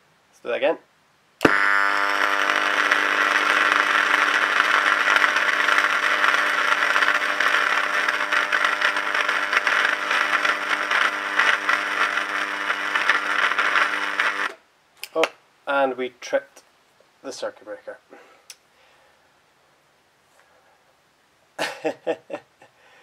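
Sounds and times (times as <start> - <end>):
electric arc buzzing: 1.4 - 15.3
crackling hiss of arcing: 1.4 - 15.8.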